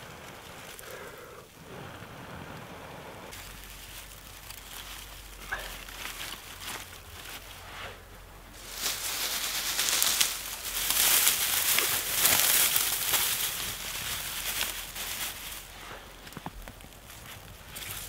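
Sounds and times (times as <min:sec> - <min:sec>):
dry grass rustling and crinkling: 0:00.0 - 0:18.0
fire crackling: 0:00.0 - 0:18.0.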